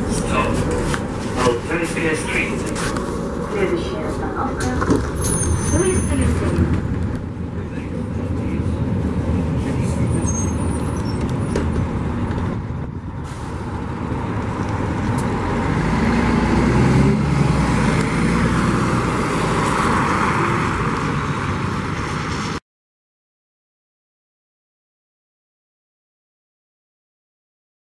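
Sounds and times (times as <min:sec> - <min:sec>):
bus engine driving past: 0:00.0 - 0:22.6.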